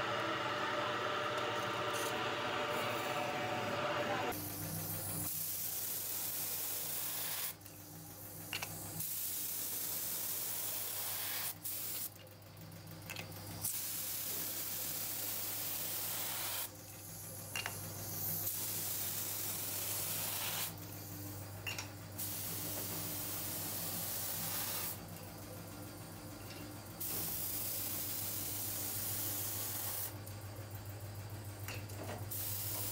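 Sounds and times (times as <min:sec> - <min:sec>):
paint spray gun hissing: 0:04.3 - 0:07.6, 0:09.0 - 0:12.1, 0:13.8 - 0:16.7, 0:18.0 - 0:21.1, 0:22.2 - 0:25.0, 0:27.0 - 0:30.1, 0:32.3 - 0:32.9.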